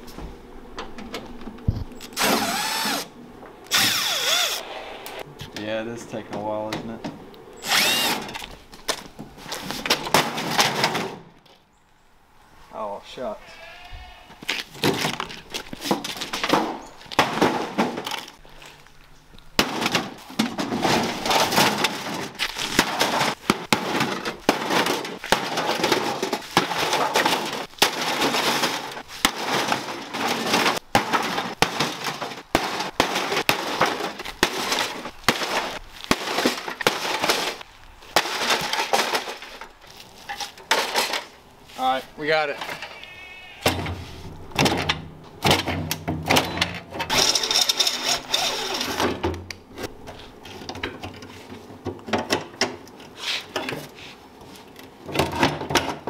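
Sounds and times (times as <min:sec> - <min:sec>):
broken parts rattling: 0:19.6 - 0:37.6, 0:38.2 - 0:41.4, 0:44.6 - 0:49.5
sledgehammer smashing sheet metal: 0:19.6 - 0:37.6.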